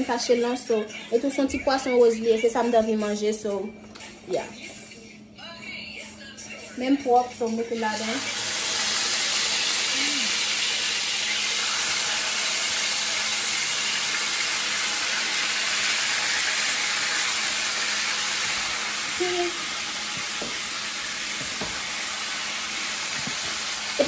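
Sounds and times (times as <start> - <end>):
fish sizzling in hot oil: 7.8 - 24.0.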